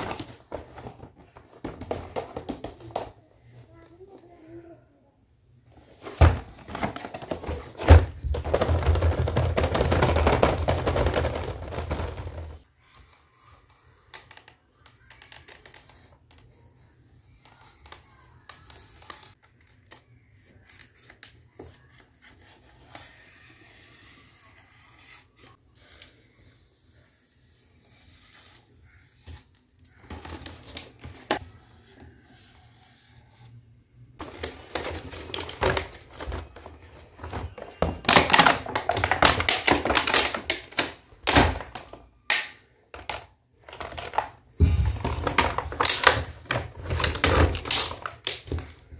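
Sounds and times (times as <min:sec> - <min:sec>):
stiff plastic crackling: 0:06.0 - 0:12.6, 0:34.2 - 0:48.9.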